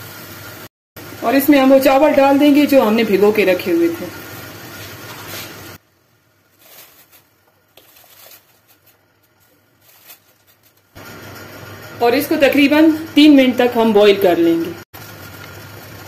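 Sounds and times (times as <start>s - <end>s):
water boiling in a pot: 0.0s - 9.8s.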